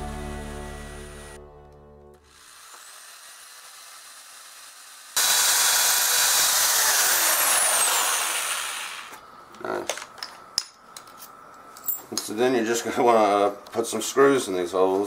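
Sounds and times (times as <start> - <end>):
background music: 0.0 - 2.3
electric drill boring into wood: 0.7 - 1.4, 2.2 - 9.2.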